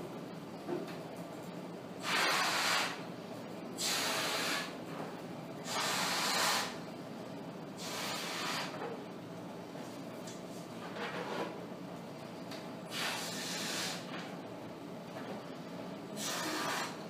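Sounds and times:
person blowing up a balloon: 0:02.0 - 0:03.0, 0:03.8 - 0:04.7, 0:05.6 - 0:06.8, 0:07.8 - 0:08.8, 0:12.9 - 0:14.1, 0:16.2 - 0:17.0.

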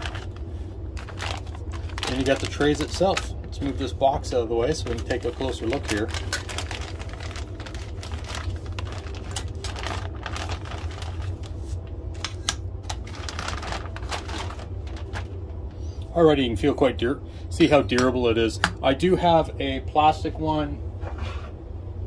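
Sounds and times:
plastic bag crinkling: 0:00.0 - 0:03.9, 0:04.7 - 0:15.4
low steady hum: 0:00.0 - 0:22.0.

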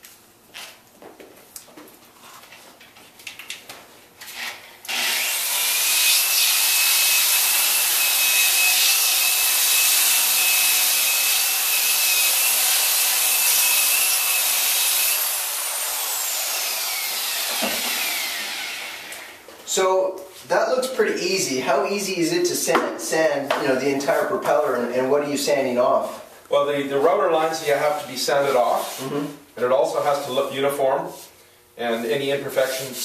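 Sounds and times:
electric disc sander whirring: 0:04.9 - 0:06.0, 0:10.3 - 0:19.4
sander motor winding down: 0:16.0 - 0:19.4.

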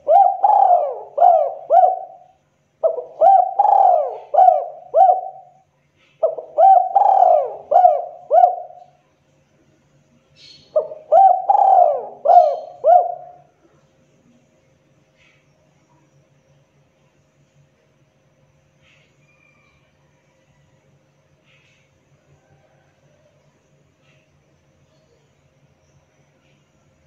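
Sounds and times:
dove cooing: 0:00.0 - 0:09.0, 0:10.7 - 0:13.5.

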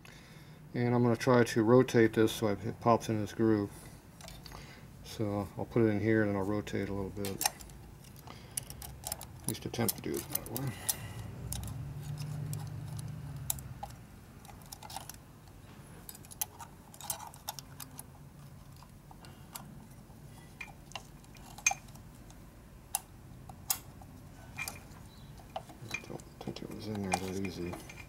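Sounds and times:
small metallic clicks and taps: 0:07.2 - 0:15.2, 0:20.6 - 0:28.0.

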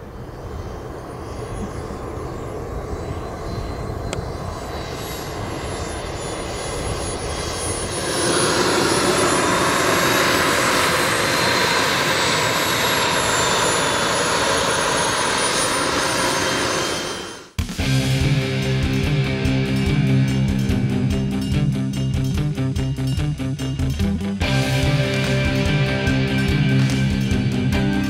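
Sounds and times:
jet turbine engine whine: 0:00.0 - 0:21.5.

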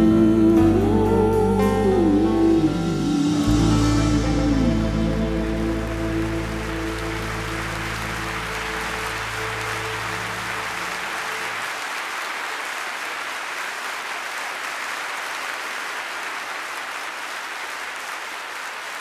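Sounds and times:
music held chord: 0:00.0 - 0:11.7
audience applauding: 0:05.2 - 0:19.0.

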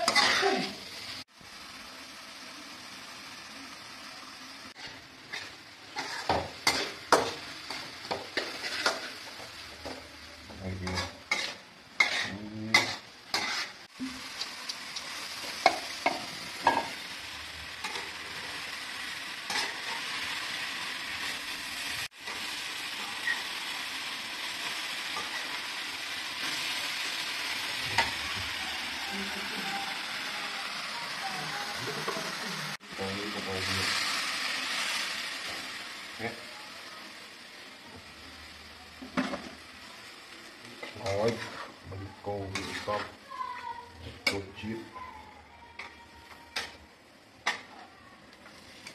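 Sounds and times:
food sizzling in wok: 0:00.0 - 0:48.9
ladle scraping metal wok: 0:04.7 - 0:10.0, 0:10.8 - 0:14.5, 0:40.8 - 0:43.2.

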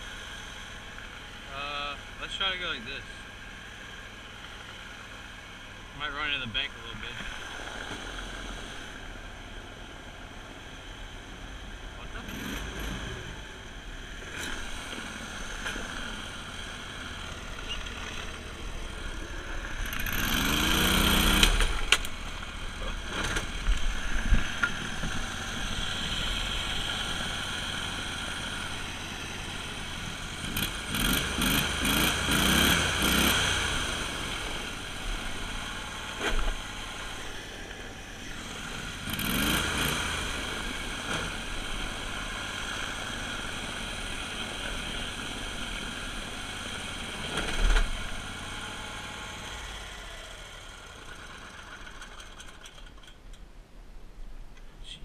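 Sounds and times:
mud motor engine revving: 0:12.0 - 0:52.8.

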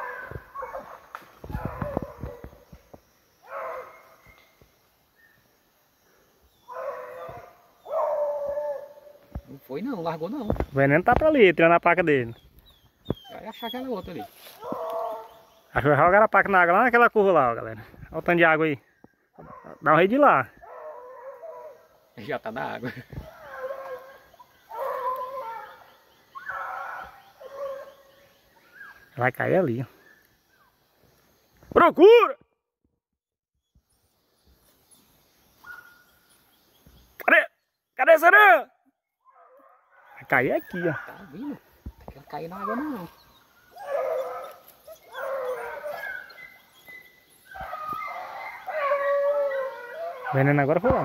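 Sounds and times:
hounds baying: 0:00.0 - 0:02.7, 0:03.4 - 0:04.5, 0:06.6 - 0:09.4, 0:12.1 - 0:15.8, 0:19.3 - 0:29.2, 0:39.2 - 0:41.8, 0:42.4 - 0:51.0.

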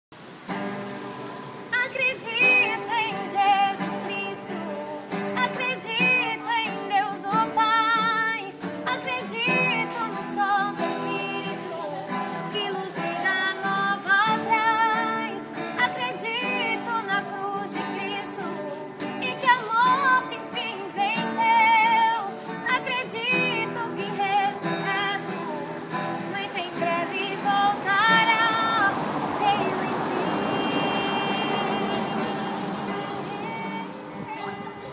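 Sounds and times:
acoustic guitar: 0:00.1 - 0:34.9
person singing with vibrato: 0:01.6 - 0:34.9.

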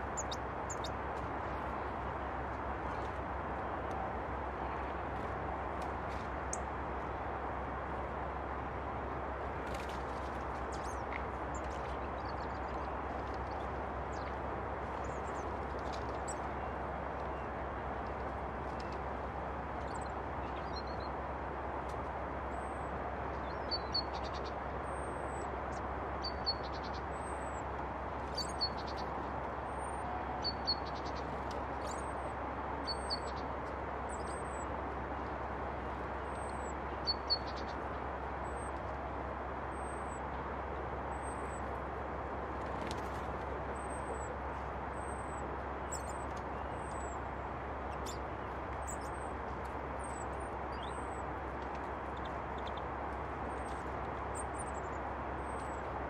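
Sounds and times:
songbird paired chirps: 0:50.1 - 0:51.2.

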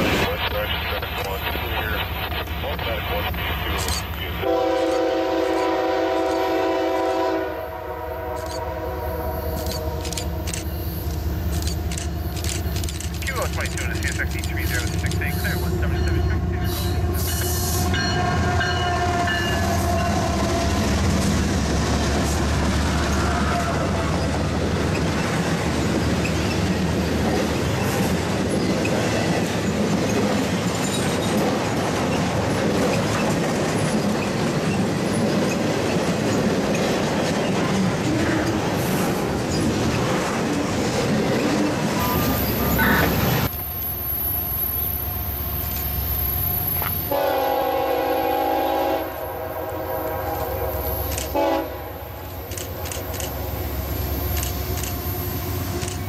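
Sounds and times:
diesel locomotive engines: 0:00.0 - 0:56.0
steel wheels clattering on rails: 0:09.6 - 0:17.6, 0:19.6 - 0:43.3.

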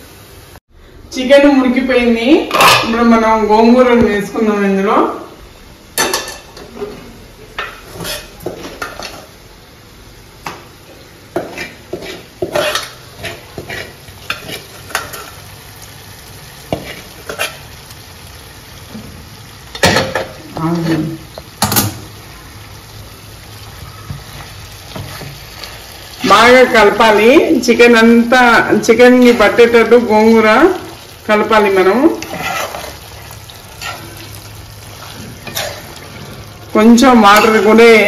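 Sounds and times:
frying sizzle: 0:00.0 - 0:00.6, 0:01.2 - 0:38.0
metal spatula scraping a pan: 0:07.6 - 0:09.3, 0:11.3 - 0:15.5, 0:16.7 - 0:17.8, 0:31.9 - 0:38.0.

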